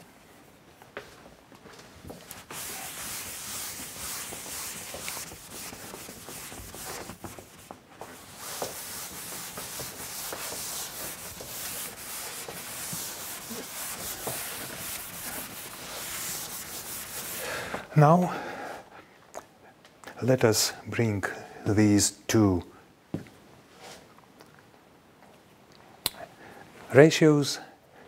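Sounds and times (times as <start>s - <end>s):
eraser rubbing a blackboard: 2.2s - 17.5s.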